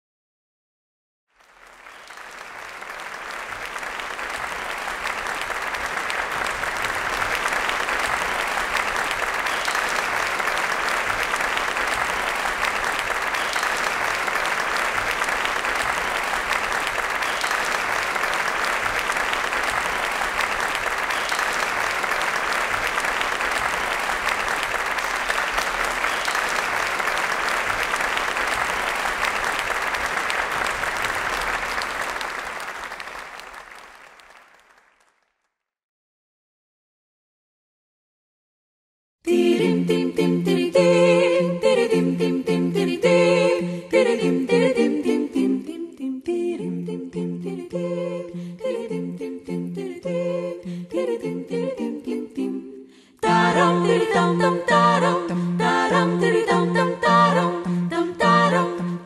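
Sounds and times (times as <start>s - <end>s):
audience applauding: 1.3s - 35.6s.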